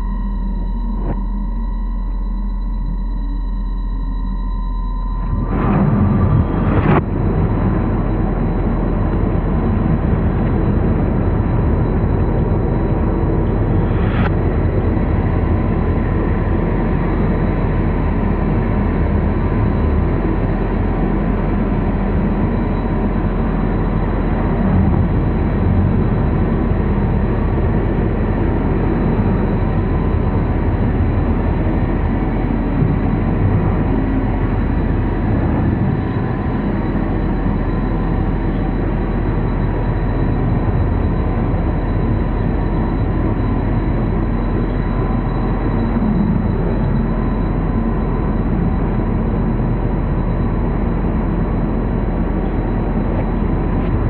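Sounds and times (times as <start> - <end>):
faint high tones: 0.0 - 14.9, 41.4 - 50.0
low rumbling drone: 0.0 - 54.0.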